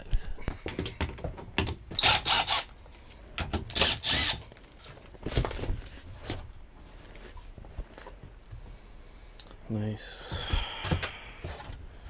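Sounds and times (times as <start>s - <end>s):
cordless drill driving screws: 2.0s - 2.7s, 3.7s - 4.4s.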